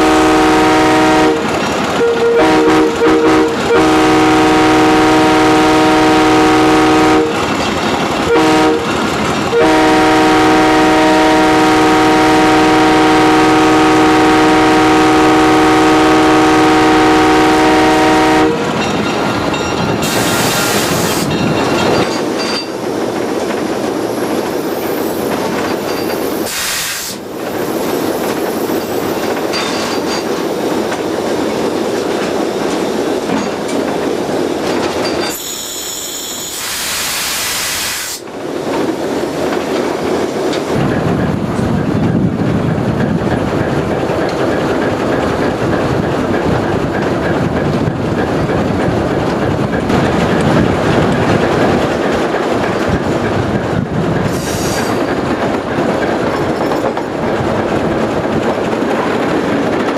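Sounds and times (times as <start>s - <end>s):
locomotive air horn chord: 0.0s - 7.4s, 8.3s - 8.9s, 9.5s - 18.7s
train running along track: 0.0s - 59.9s
brief hisses: 26.5s - 27.2s, 35.4s - 38.2s, 54.3s - 55.0s.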